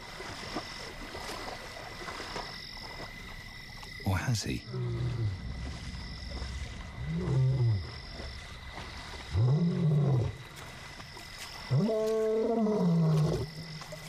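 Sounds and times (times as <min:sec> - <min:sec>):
lion roaring: 0:06.9 - 0:08.0, 0:09.3 - 0:10.4, 0:11.7 - 0:13.5.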